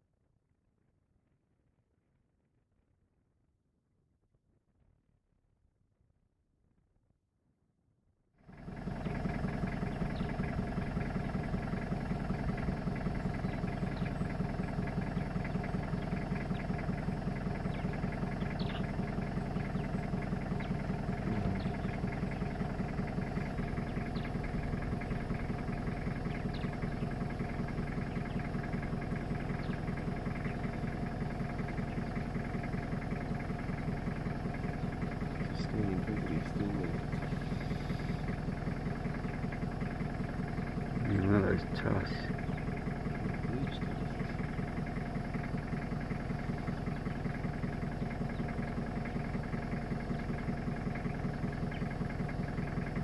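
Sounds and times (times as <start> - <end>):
vehicle engine idling: 8.4 - 53.0.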